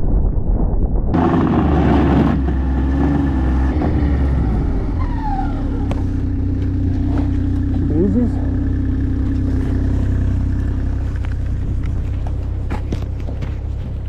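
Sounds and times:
snowmobile engine running: 1.2s - 14.0s.

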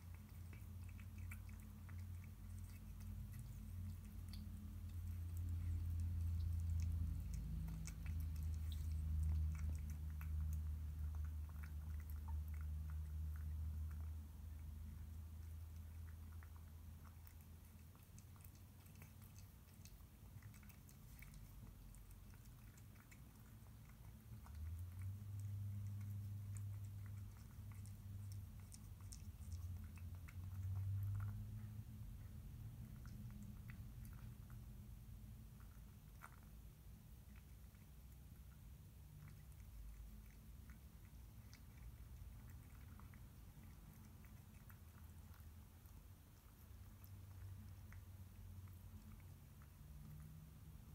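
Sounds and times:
cat chewing and licking: 0.0s - 50.9s
low steady hum: 0.0s - 50.9s.

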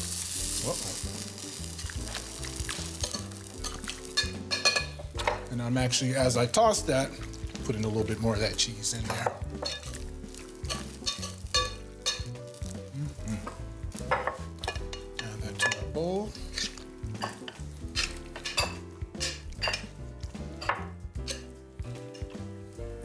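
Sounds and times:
wet stirring: 1.6s - 5.6s, 6.5s - 22.8s
metal tongs scraping glass bowl: 3.0s - 4.9s, 9.6s - 10.0s, 10.7s - 12.3s, 16.5s - 19.9s.

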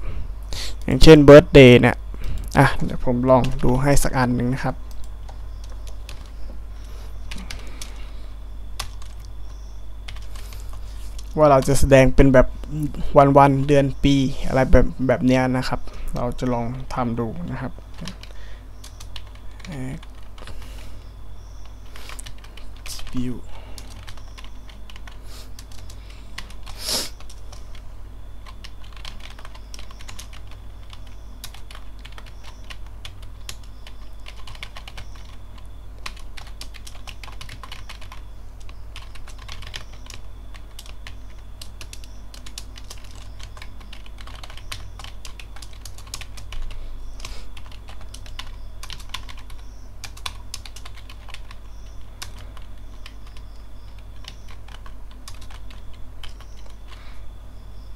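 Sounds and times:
steady low hum: 0.0s - 57.9s
keyboard typing clicks: 8.8s - 11.8s, 23.8s - 27.8s, 28.4s - 57.0s.

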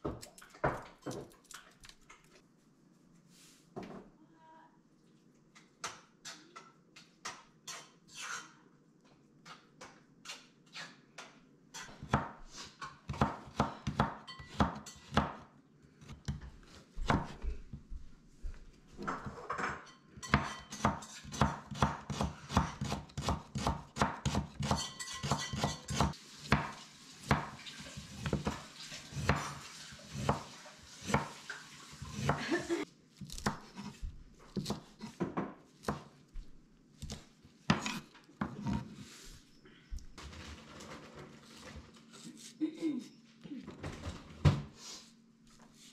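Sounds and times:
knife chopping on wooden board: 20.3s - 26.7s, 33.2s - 36.2s, 37.0s - 39.0s.

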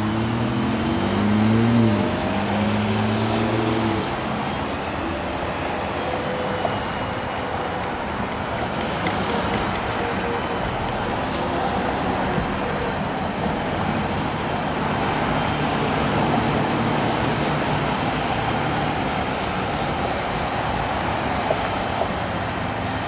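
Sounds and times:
vehicle engine pulling away: 0.0s - 4.6s
passing cars and tyre noise: 0.0s - 23.0s.

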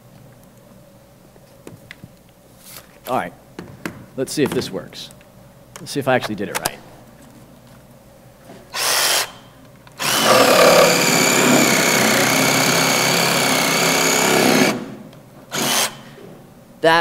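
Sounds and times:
cordless drill whining: 8.7s - 9.4s, 10.0s - 14.8s, 15.5s - 16.0s.

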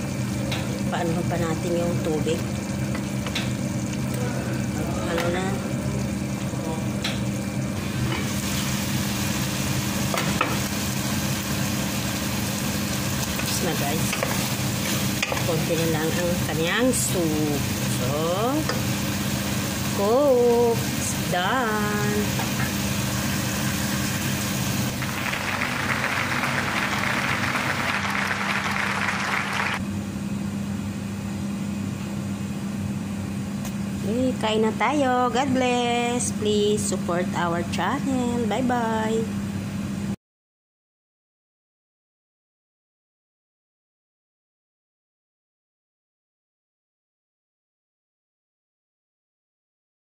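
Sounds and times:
stew simmering and sizzling: 0.0s - 29.8s
steady low hum: 0.0s - 40.2s.

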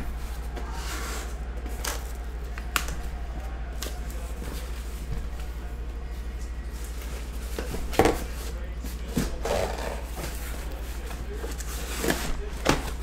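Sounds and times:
steady low hum: 0.0s - 13.0s
cardboard rustling and scraping: 3.7s - 13.0s.

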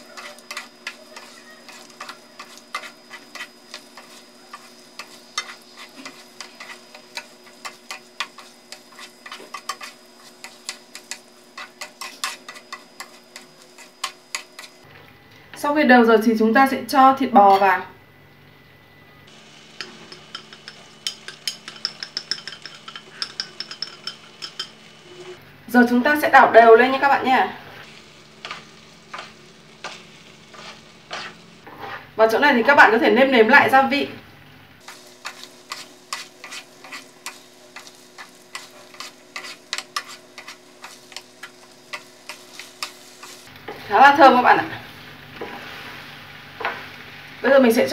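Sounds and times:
chopsticks scraping a frying pan: 0.0s - 14.8s, 19.8s - 25.4s, 27.8s - 32.2s, 34.8s - 43.9s, 45.3s - 46.9s
faint sizzle from pan: 0.0s - 47.9s
chopsticks clicking on a plate: 20.1s - 24.7s.

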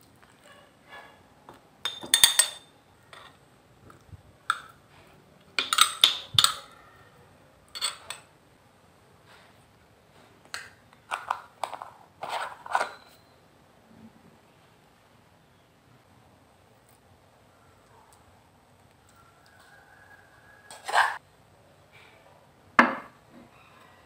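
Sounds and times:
spoon clinking on glass jar: 1.8s - 3.3s, 5.6s - 6.7s, 7.7s - 8.3s
spoon scraping stone mortar: 5.6s - 6.7s, 7.8s - 8.3s, 11.1s - 13.2s, 20.7s - 21.2s.

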